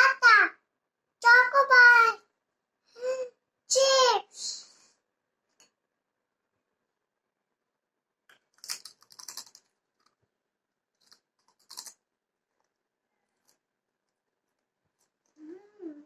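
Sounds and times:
child crunching potato chip: 0:08.4 - 0:10.1, 0:11.0 - 0:12.0.

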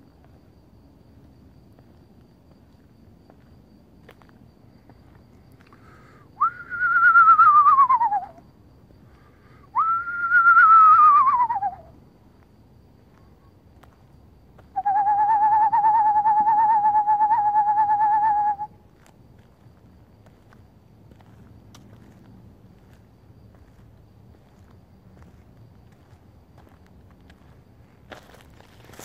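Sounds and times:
person whistling owl call: 0:06.4 - 0:08.4, 0:09.7 - 0:12.0, 0:14.7 - 0:18.8.

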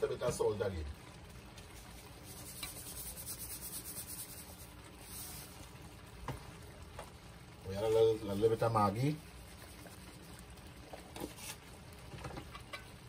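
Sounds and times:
salt sprinkling hiss: 0:01.7 - 0:05.8.

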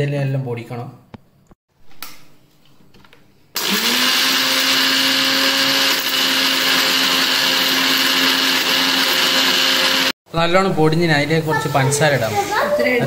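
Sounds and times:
mixer grinder motor running: 0:03.6 - 0:10.2.

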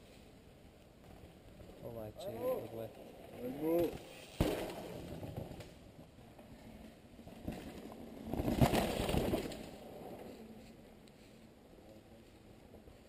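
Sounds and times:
bike tyres rushing on dirt: 0:00.1 - 0:11.4
bike rattling: 0:00.9 - 0:10.7.

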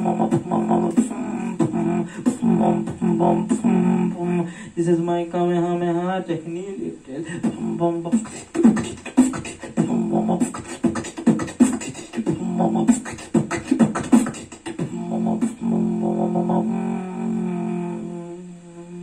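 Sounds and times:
beatboxing into a microphone: 0:00.0 - 0:05.0, 0:06.3 - 0:19.0
low hummed tone: 0:00.0 - 0:06.4, 0:12.3 - 0:12.9, 0:14.8 - 0:19.0.

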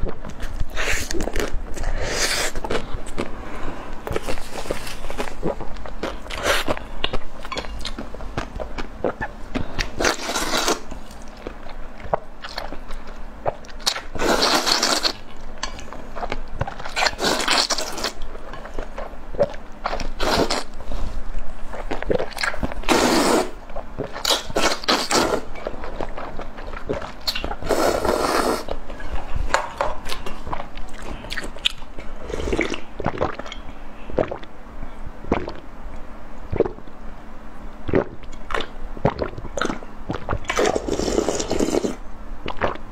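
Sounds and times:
wet slurping of noodles: 0:14.2 - 0:15.2, 0:22.9 - 0:23.6, 0:27.6 - 0:28.7, 0:40.5 - 0:42.0
chewing: 0:23.7 - 0:29.3, 0:30.0 - 0:31.8.

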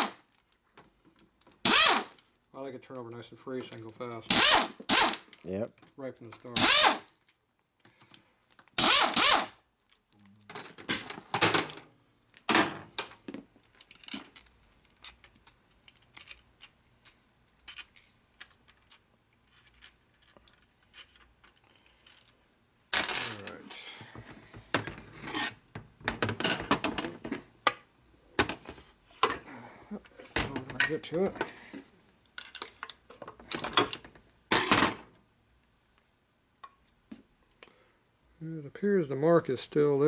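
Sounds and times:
pneumatic driver bursts: 0:01.6 - 0:02.1, 0:04.3 - 0:05.2, 0:06.6 - 0:07.1, 0:08.8 - 0:09.6
small metal clicks and clinks: 0:13.6 - 0:22.4.

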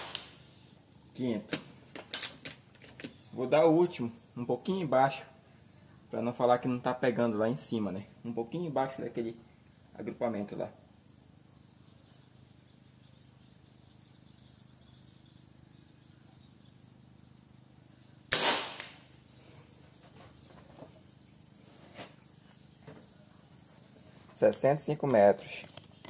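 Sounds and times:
air rifle shot: 0:00.0 - 0:00.4, 0:18.3 - 0:19.1
high insect drone: 0:00.0 - 0:26.0.

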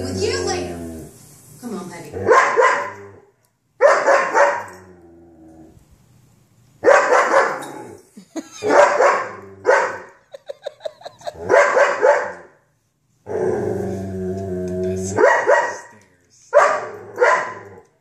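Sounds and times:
dog barking deeply: 0:02.2 - 0:03.1, 0:03.8 - 0:04.8, 0:06.8 - 0:07.7, 0:08.6 - 0:10.1, 0:11.4 - 0:12.5, 0:15.1 - 0:15.9, 0:16.6 - 0:17.8.

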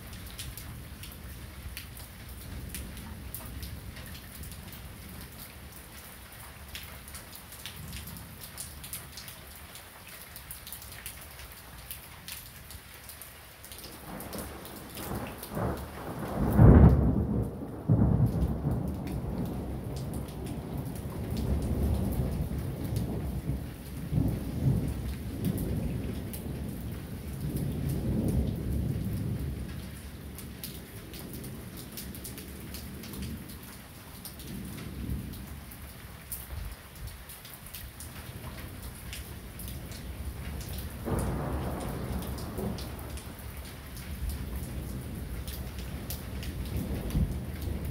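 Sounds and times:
heavy rain falling: 0:00.0 - 0:47.9
thunder rumbling: 0:14.0 - 0:30.6, 0:38.4 - 0:47.9
loud thunderclap: 0:14.1 - 0:26.8, 0:40.2 - 0:43.4, 0:44.1 - 0:47.9.

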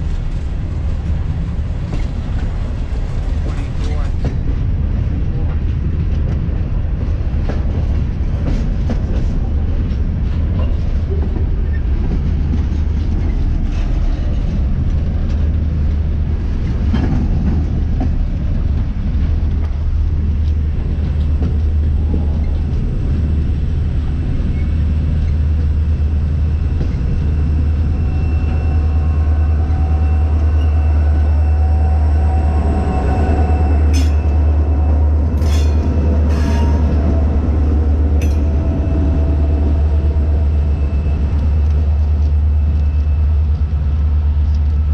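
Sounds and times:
freight train rumbling past: 0:00.0 - 0:44.9
wheels squealing on rail: 0:26.6 - 0:41.7.

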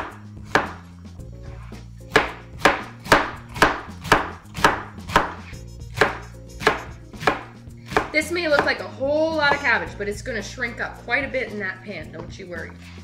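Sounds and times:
knife chopping cabbage on a board: 0:00.0 - 0:00.8, 0:02.1 - 0:08.8.

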